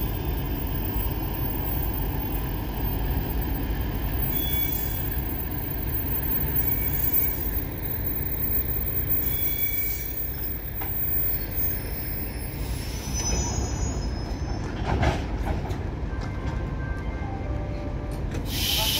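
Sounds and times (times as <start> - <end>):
wheels and brakes squealing: 0.0 - 14.9
train clanks and knocks: 0.0 - 18.9
train rolling low rumble: 0.0 - 18.9.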